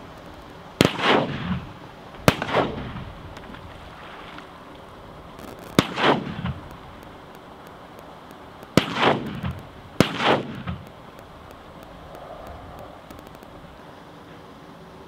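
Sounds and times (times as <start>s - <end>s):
shotgun blasts with echo: 0.8s - 3.3s, 5.4s - 6.8s, 8.7s - 11.0s.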